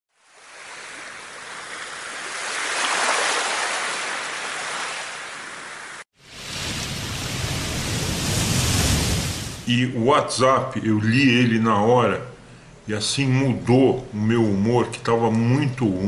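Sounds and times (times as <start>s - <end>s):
rushing surf-like noise: 0.5s - 9.7s
low rumbling noise: 6.2s - 10.2s.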